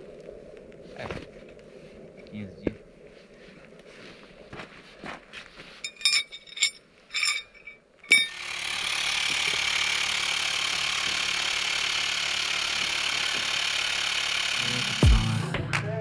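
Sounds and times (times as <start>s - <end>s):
sharp metallic clinks: 5.8s - 8.5s.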